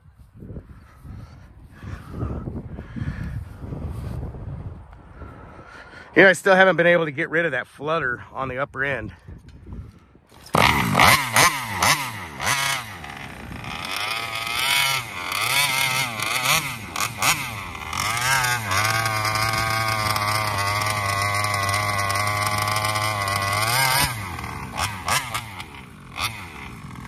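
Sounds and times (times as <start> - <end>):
two-stroke engine revving: 10.3 - 27.0.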